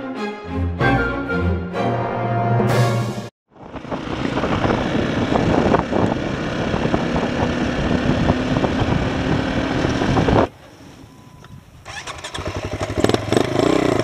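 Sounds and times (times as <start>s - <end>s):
wind noise: 3.5s - 13.4s
road noise: 3.5s - 14.0s
dirt bike engine running: 3.6s - 10.5s, 11.9s - 14.0s.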